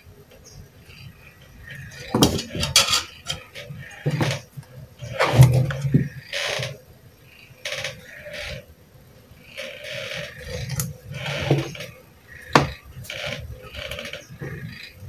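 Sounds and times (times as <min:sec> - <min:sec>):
rustling and scraping: 0:01.6 - 0:06.8, 0:09.6 - 0:14.9.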